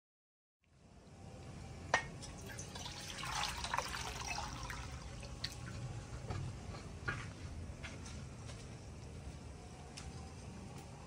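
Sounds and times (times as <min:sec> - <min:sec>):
water pouring into metal bowl: 0:02.3 - 0:05.6.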